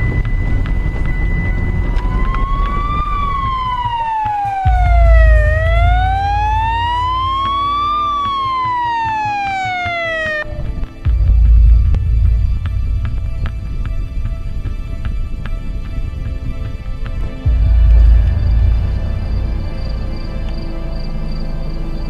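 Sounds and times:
deep low rumble: 0.0 - 8.2, 10.4 - 16.6, 17.4 - 22.0
police siren wailing: 0.0 - 11.7.

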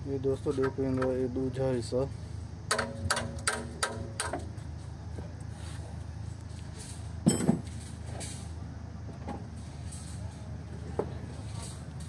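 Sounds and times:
diesel generator humming: 0.0 - 12.0.

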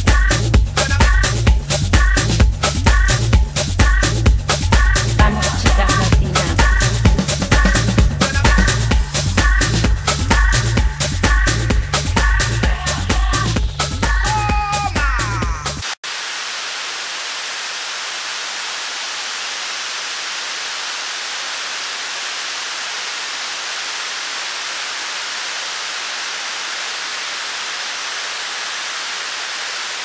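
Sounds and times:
television static hiss: 15.8 - 30.0.

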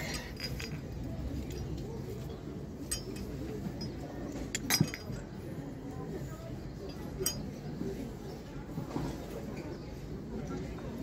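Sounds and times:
porcelain clinking: 0.0 - 2.0, 2.8 - 5.4, 6.8 - 7.7
murmur of voices: 0.0 - 11.0.

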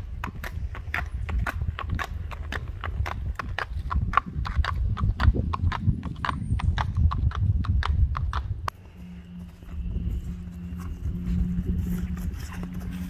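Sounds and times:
horse hooves clip-clopping: 0.0 - 13.0
low rumble: 4.8 - 13.0.

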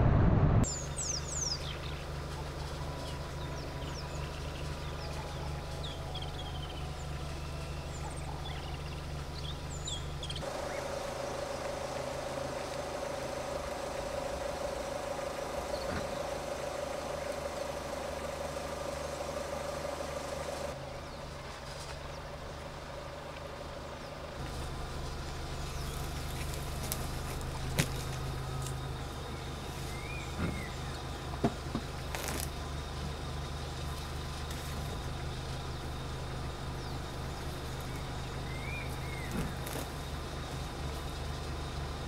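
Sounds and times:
single-pitched drone: 0.0 - 0.9
steady low hum: 0.0 - 42.0
birds chirping: 0.6 - 42.0.

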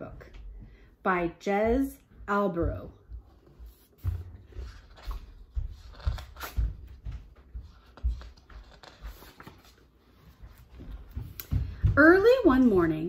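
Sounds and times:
light rustling of book cover: 3.3 - 11.7.

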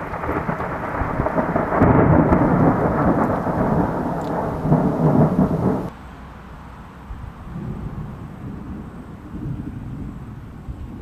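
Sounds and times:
thunder rumbling: 0.0 - 5.9, 7.5 - 11.0
rain falling: 0.0 - 6.0.

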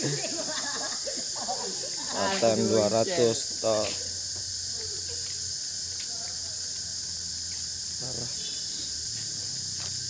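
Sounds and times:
insects chirring: 0.0 - 10.0
person speaking: 2.1 - 4.0.

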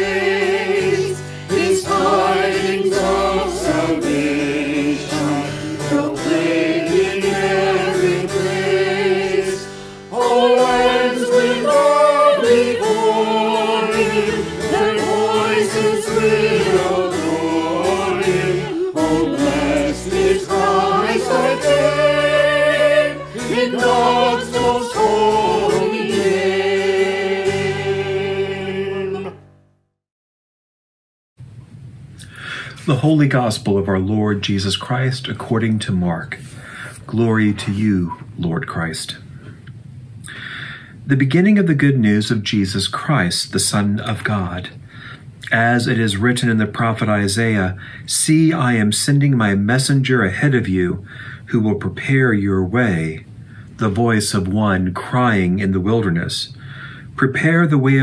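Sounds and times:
choir singing a hymn: 0.0 - 29.4
sustained low instrumental notes: 1.5 - 29.5.

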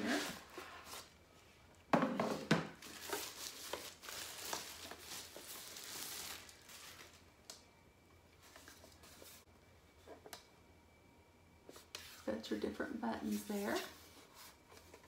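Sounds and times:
protective wrap crinkling: 2.8 - 7.3.

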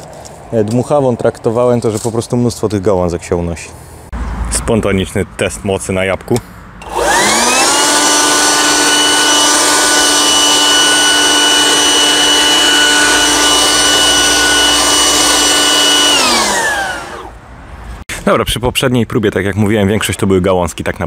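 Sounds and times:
leaf blower running: 6.8 - 17.4.

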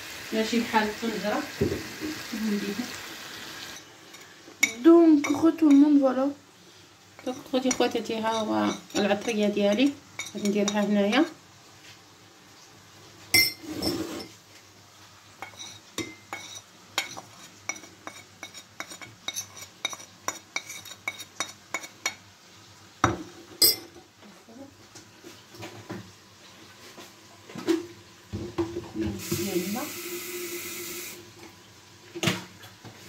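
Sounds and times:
metal spoon scraping ceramic bowl: 7.2 - 10.9, 13.4 - 14.4, 15.4 - 21.9.

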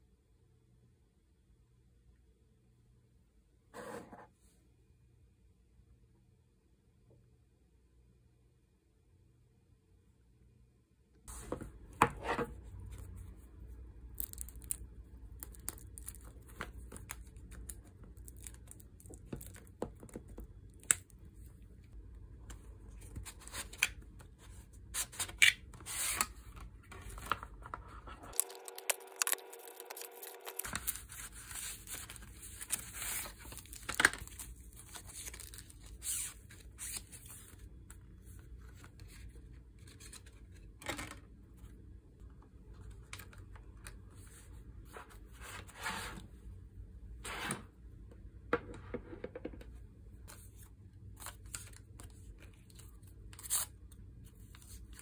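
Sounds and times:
rustling wrappings: 26.6 - 37.6
tearing paper and film: 28.3 - 37.2.

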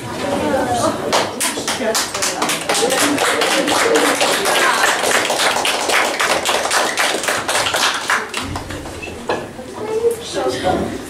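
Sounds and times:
audience clapping: 1.1 - 9.0.

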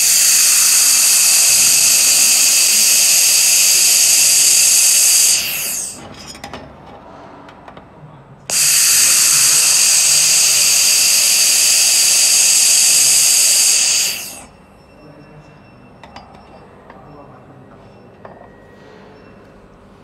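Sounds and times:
laser welding gun hissing: 0.0 - 6.0, 8.5 - 14.5.

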